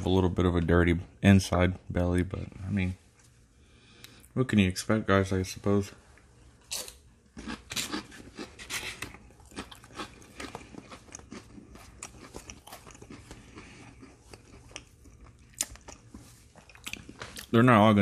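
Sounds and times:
person chewing crunchy cracker: 6.6 - 17.6.

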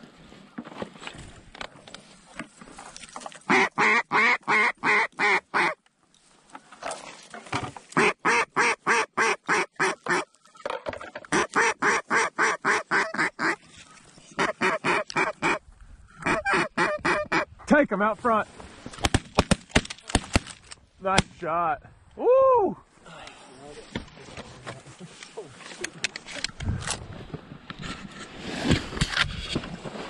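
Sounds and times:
duck call quacks: 3.5 - 5.8, 8.0 - 10.3, 11.3 - 13.6, 14.4 - 15.6, 16.2 - 17.5.

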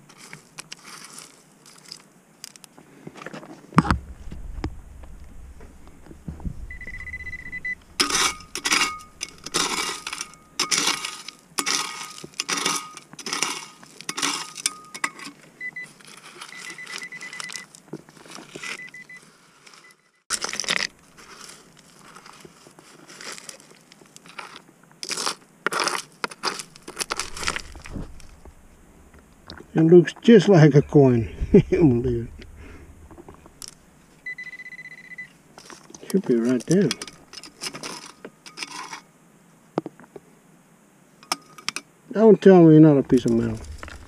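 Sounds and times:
stones and gravel crunching: 0.0 - 34.3, 35.6 - 39.1, 42.8 - 44.0
metal detector tone and beeps: 6.6 - 10.5, 15.6 - 15.9, 16.5 - 17.7, 18.6 - 20.2, 34.2 - 35.3.

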